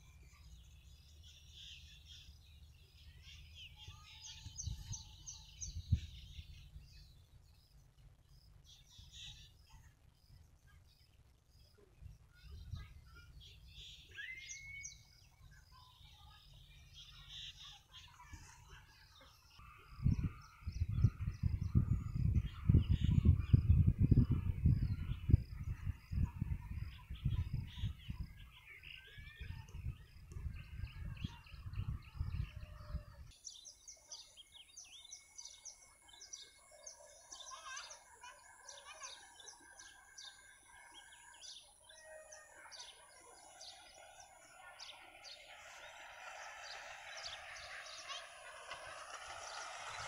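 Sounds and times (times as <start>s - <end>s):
birds chirping: 0.0s - 50.0s
wind buffeting microphone: 3.9s - 7.2s, 19.6s - 33.4s, 42.8s - 50.0s.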